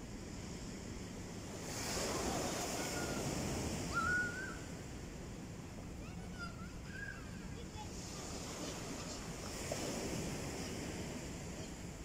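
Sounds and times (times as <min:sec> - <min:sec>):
wave hissing over sand: 0:00.0 - 0:12.0
child calling: 0:06.0 - 0:08.1.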